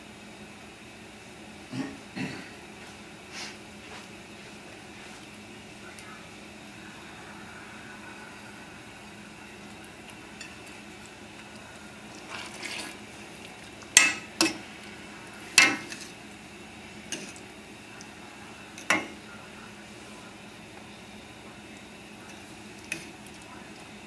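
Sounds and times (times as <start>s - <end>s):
spoon scraping pan: 12.1s - 14.7s, 15.4s - 16.2s, 17.1s - 17.5s
metal clanks on pan: 15.6s - 16.0s.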